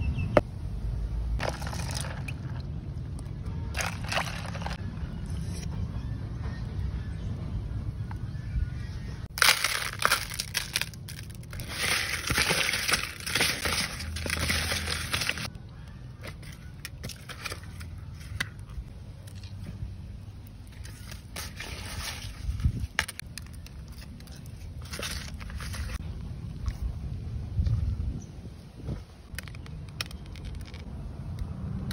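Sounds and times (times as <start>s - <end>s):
eels crunching in salt: 1.4s - 2.7s, 3.7s - 4.8s, 9.3s - 15.5s, 16.2s - 18.7s, 20.6s - 26.0s
scattered crackles and clicks: 29.3s - 31.9s.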